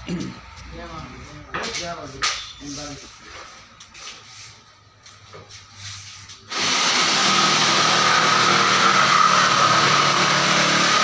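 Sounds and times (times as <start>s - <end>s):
power tool motor whining: 6.5s - 11.0s.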